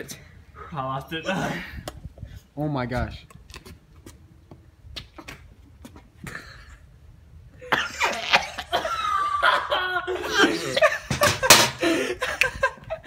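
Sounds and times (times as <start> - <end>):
people laughing: 7.7 - 13.0.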